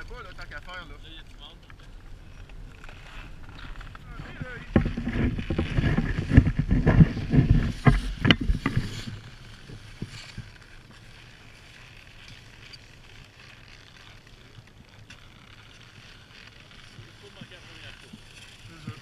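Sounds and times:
wind buffeting microphone: 0:02.0 - 0:10.5.

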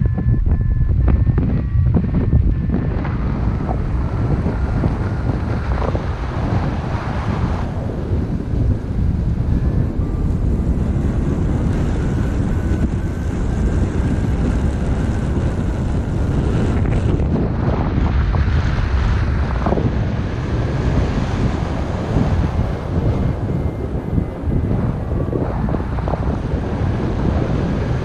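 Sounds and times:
wind buffeting microphone: 0:00.0 - 0:28.0.

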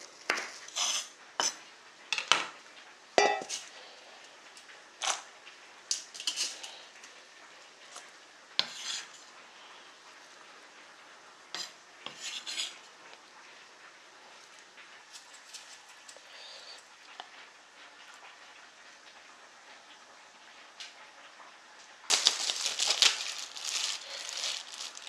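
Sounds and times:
knife clinking on cutting board: 0:03.2 - 0:03.5
metal mixing bowl clinks: 0:03.2 - 0:03.5.

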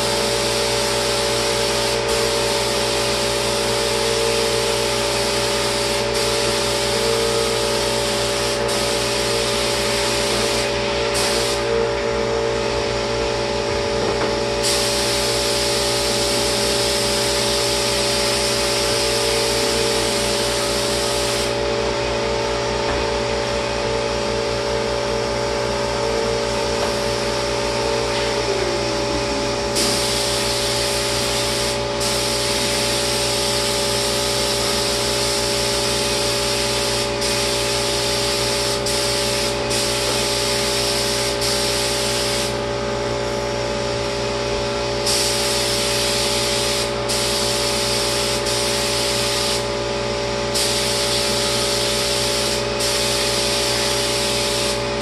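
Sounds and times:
spray gun hissing: 0:00.1 - 0:11.7, 0:14.6 - 0:21.6, 0:29.7 - 0:42.6, 0:45.0 - 0:49.7, 0:50.5 - 0:55.0.

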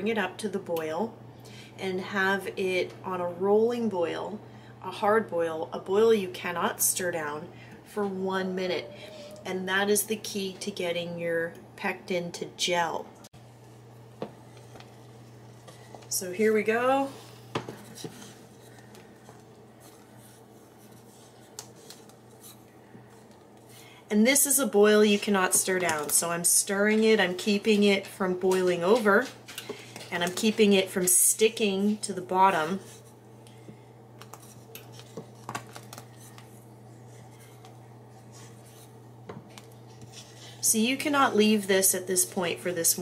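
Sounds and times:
low steady hum: 0:00.0 - 0:43.0
jam boiling: 0:13.3 - 0:43.0
wooden spoon scraping a pot: 0:14.4 - 0:23.9, 0:24.8 - 0:33.2, 0:34.2 - 0:41.1.

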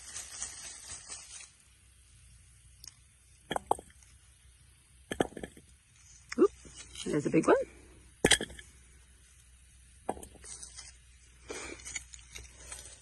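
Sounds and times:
hand digging in soil and straw: 0:00.0 - 0:01.6, 0:10.3 - 0:13.0.

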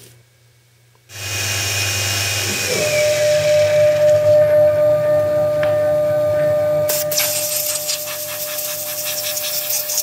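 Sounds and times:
milling spindle whining: 0:01.1 - 0:10.0
sudden hiss: 0:06.9 - 0:10.0.

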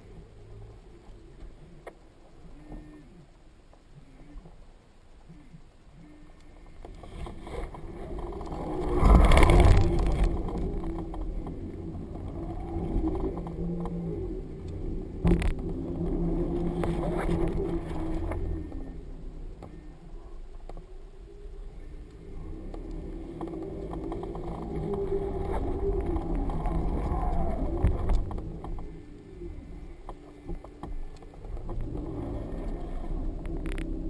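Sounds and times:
wind buffeting camera: 0:06.8 - 0:19.8, 0:20.6 - 0:34.0.

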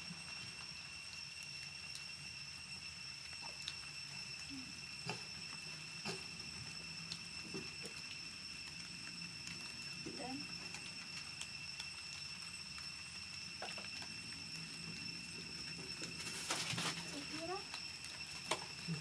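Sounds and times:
baby monkeys rustling: 0:15.8 - 0:19.0.

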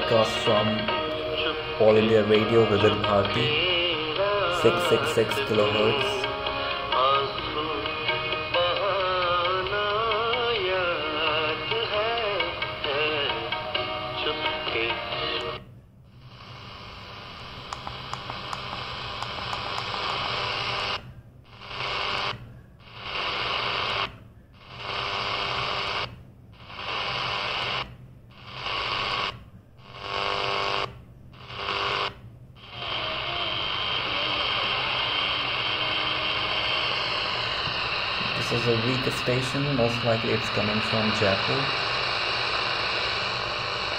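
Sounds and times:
radio static and hiss: 0:00.0 - 0:07.8, 0:14.2 - 0:43.9
music from radio station: 0:00.0 - 0:15.6, 0:16.5 - 0:21.0, 0:32.6 - 0:43.9
weak radio station: 0:00.0 - 0:43.9.

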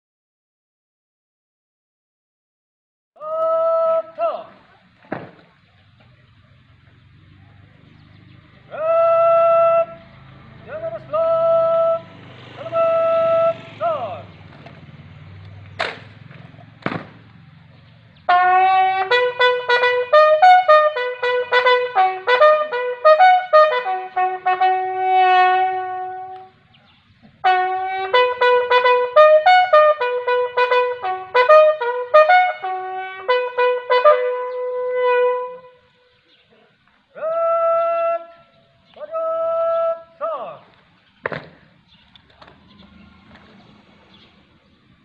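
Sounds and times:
bugle call: 0:03.2 - 0:04.6, 0:08.7 - 0:14.3, 0:18.3 - 0:26.6, 0:27.4 - 0:36.2, 0:37.1 - 0:40.6.

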